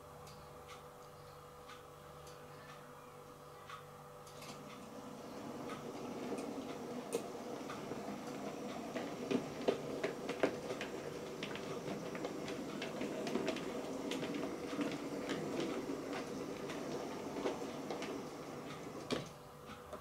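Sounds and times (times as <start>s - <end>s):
wheels clicking over rail joints: 4.4s - 19.4s.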